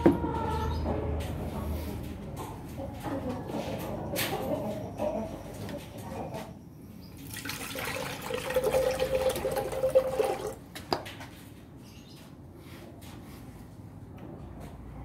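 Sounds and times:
water pouring and splashing: 7.2 - 10.6.

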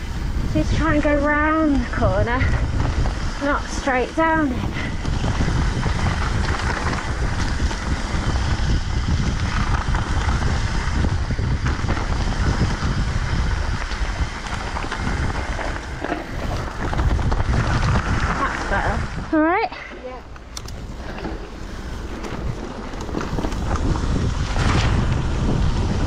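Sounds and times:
bike tyres rumbling on rough trail: 0.0 - 26.0
wind buffeting microphone: 0.0 - 26.0.

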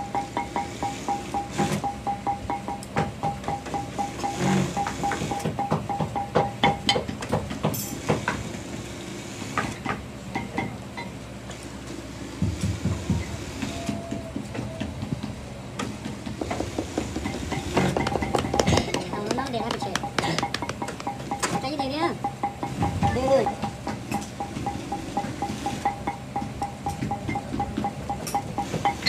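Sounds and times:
steady pulsing tone: 0.0 - 6.9, 17.3 - 29.0.

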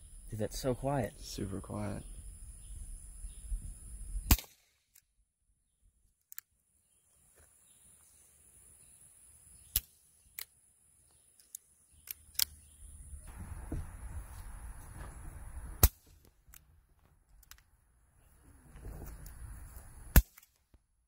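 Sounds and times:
suppressed revolver shot: 4.2 - 4.7, 15.8 - 16.2
sharp cracks and clicks: 4.3 - 5.1, 9.7 - 10.6, 11.4 - 12.6, 15.8 - 16.7, 17.3 - 17.7, 20.1 - 20.8.

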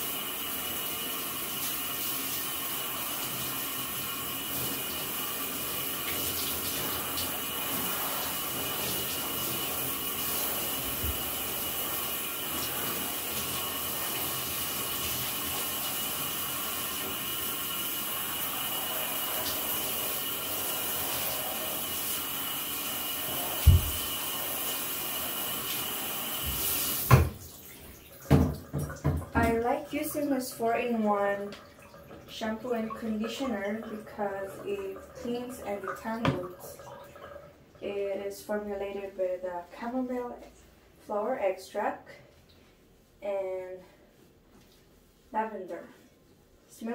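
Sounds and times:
shower sprayer water spraying: 0.0 - 31.4
dull thump: 23.7 - 24.0.

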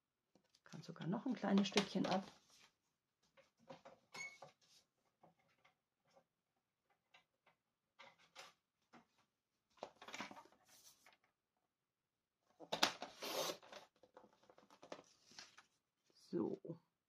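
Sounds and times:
paper clicks and rustles: 8.0 - 11.2, 12.6 - 15.8.

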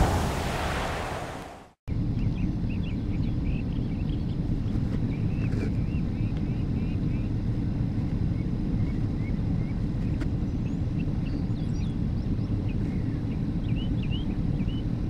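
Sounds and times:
wind rumbling on microphone: 0.0 - 15.0
small birds chirping: 8.2 - 15.0.

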